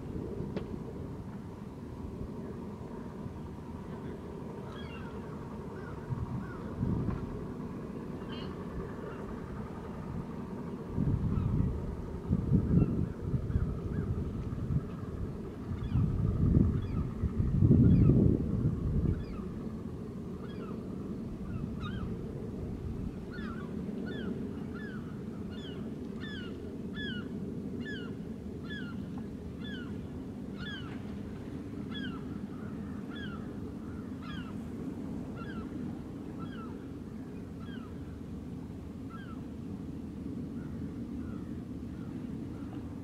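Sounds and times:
low background rumble: 0.0 - 43.0
bird calling: 4.0 - 6.7, 8.2 - 9.4, 21.4 - 22.2, 23.2 - 30.0, 30.6 - 31.0, 31.8 - 34.6, 35.3 - 35.8, 36.4 - 38.2, 39.0 - 39.5.

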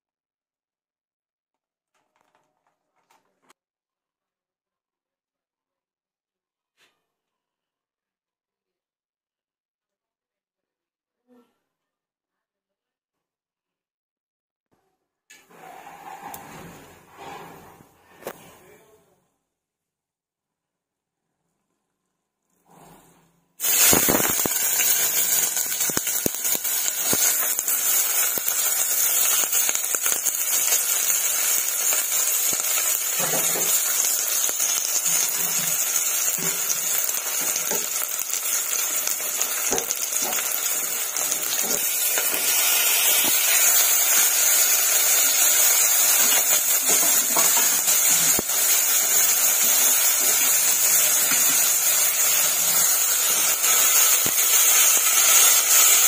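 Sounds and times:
oil sizzling: 23.6 - 56.0.

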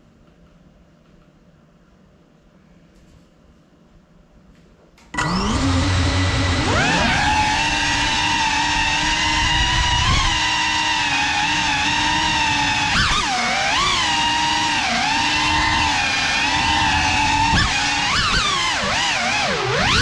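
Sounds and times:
drone motors whining: 5.2 - 20.0.

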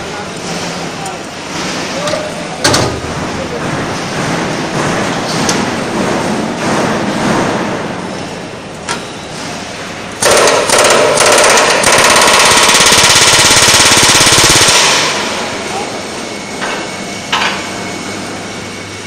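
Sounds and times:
pneumatic riveting hammer: 10.2 - 15.3.

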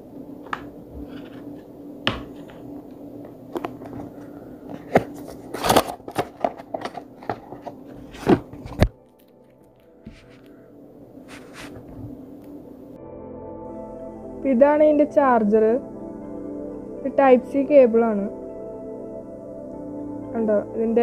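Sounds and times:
faint background music: 0.0 - 21.0
handling cardboard box and plastic: 4.8 - 9.0, 11.3 - 12.2.

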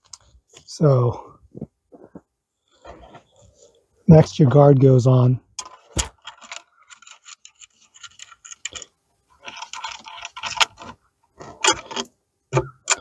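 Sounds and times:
bolts and nuts rattling: 5.6 - 13.0.

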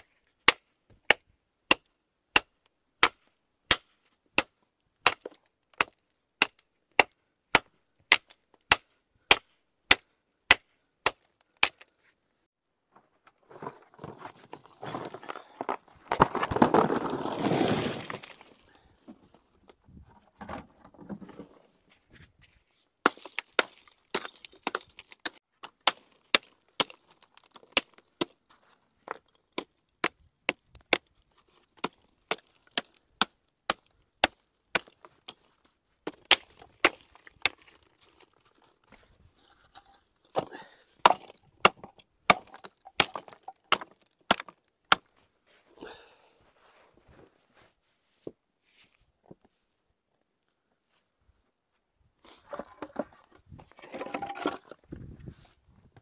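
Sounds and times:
rubble clattering onto rocks: 14.0 - 18.5, 23.1 - 28.4, 36.1 - 38.9, 41.1 - 45.1, 52.5 - 54.8.

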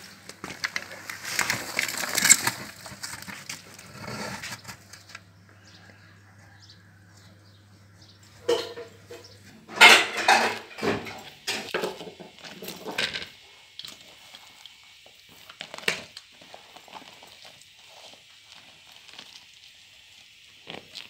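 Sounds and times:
bread crumbling and crushing: 0.0 - 5.3, 11.5 - 21.0.

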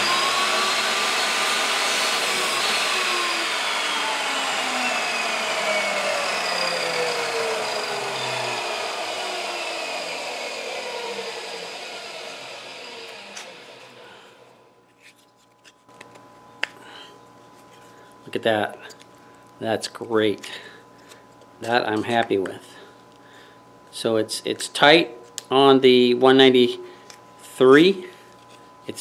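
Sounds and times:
saw blade winding down: 0.0 - 14.6
table saw cutting wood: 0.0 - 14.7.

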